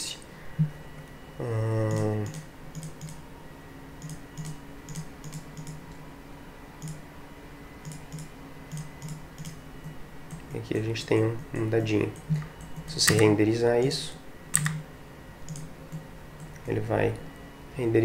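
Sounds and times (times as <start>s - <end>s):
mouse button clicks: 12.2s - 13.3s.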